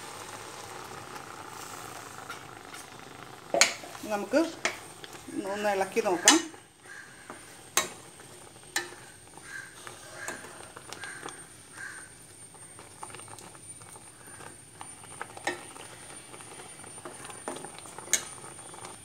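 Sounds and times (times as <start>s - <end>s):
spoon scraping wet food in pan: 3.5s - 19.0s.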